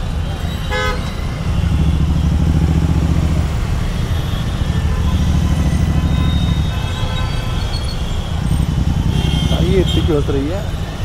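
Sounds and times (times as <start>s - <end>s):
motorcycle engine idling: 1.4s - 6.9s, 8.4s - 10.2s.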